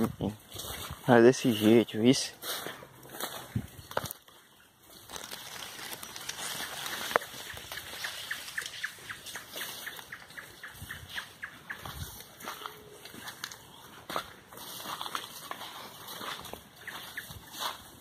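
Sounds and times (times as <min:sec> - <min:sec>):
vegetation rustling: 0:00.4 - 0:18.0.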